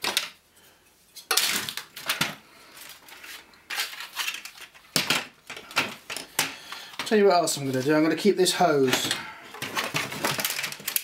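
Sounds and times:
plastic toy parts clacking: 0:03.7 - 0:07.2, 0:08.9 - 0:11.0.

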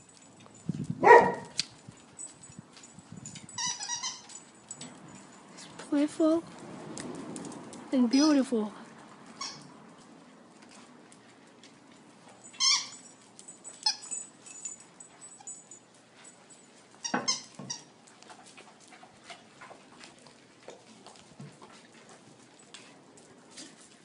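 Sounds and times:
dogs barking: 0:01.0 - 0:01.6.

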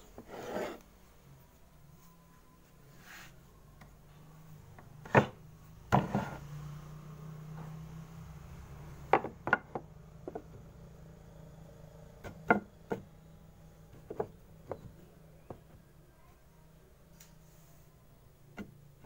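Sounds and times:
low steady hum: 0:00.0 - 0:19.0
wooden blocks knocking: 0:09.1 - 0:10.6, 0:12.2 - 0:13.1, 0:13.9 - 0:15.8.

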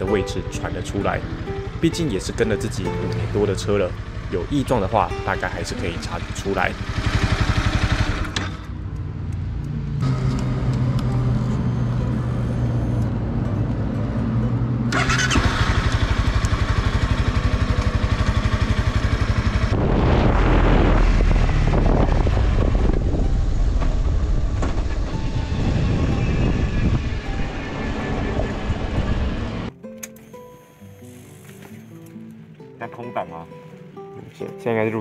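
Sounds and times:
motorcycle engine idling: 0:03.2 - 0:09.2, 0:14.9 - 0:19.7
metallic engine knocking: 0:15.6 - 0:19.7
wind noise: 0:19.4 - 0:29.7.

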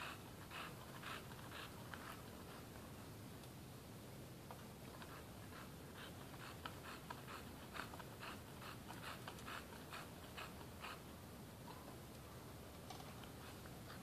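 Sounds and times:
dog panting: 0:00.0 - 0:02.7, 0:04.9 - 0:11.1.

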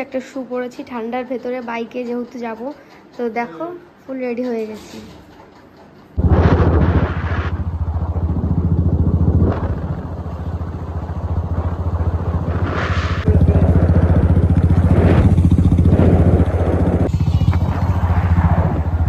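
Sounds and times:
motorcycle engine running: 0:06.2 - 0:19.0.

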